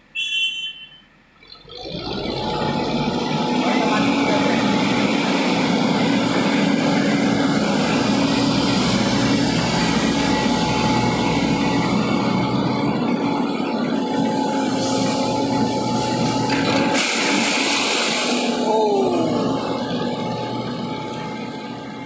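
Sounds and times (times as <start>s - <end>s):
excavator working: 1.1s - 22.0s
portable engine running: 1.4s - 22.0s.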